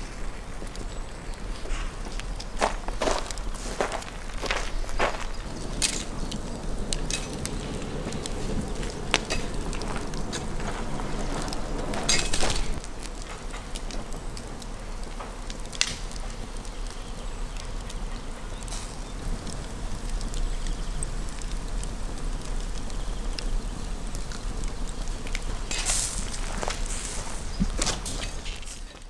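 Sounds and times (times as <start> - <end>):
fire crackling and popping: 0.0 - 29.0
shovel scraping through coals: 11.9 - 12.8, 25.6 - 29.0.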